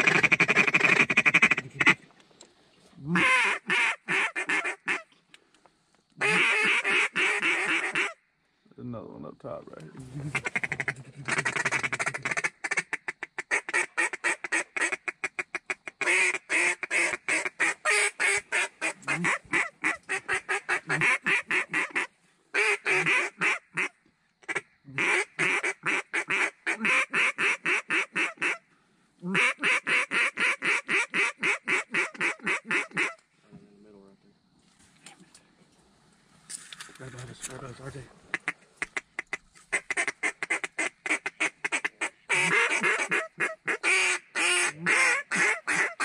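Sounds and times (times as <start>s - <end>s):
duck call quacking: 0.0s - 2.0s, 3.1s - 5.1s, 6.2s - 8.2s, 10.3s - 23.9s, 24.5s - 28.6s, 29.3s - 33.2s, 38.3s - 46.0s.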